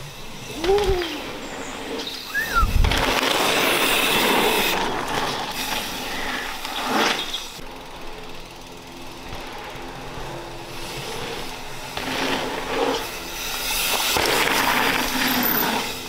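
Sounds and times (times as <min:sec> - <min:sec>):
bike tyres rolling over gravel: 0:00.0 - 0:16.0.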